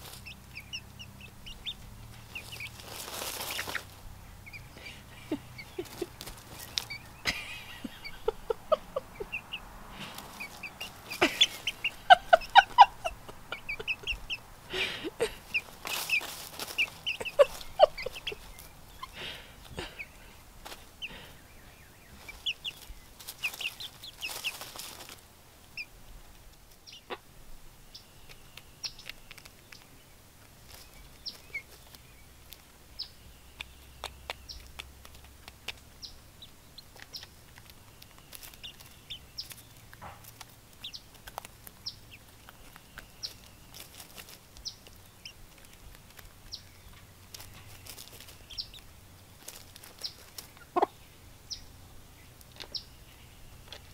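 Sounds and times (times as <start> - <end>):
chickens peeping and clucking: 0.0 - 53.9
rustling in litter: 2.1 - 4.0, 4.8 - 8.0, 9.9 - 13.2, 14.7 - 21.3, 22.1 - 25.2, 43.3 - 44.6, 47.3 - 48.6, 49.3 - 50.6.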